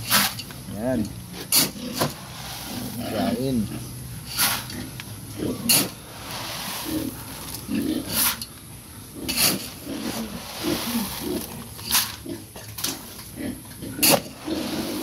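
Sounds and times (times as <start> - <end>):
metal scoop scraping feed pellets: 0.0 - 0.5, 1.4 - 3.6, 4.2 - 4.8, 5.6 - 8.5, 9.3 - 12.3
pigs grunting: 0.7 - 8.4, 9.0 - 15.0.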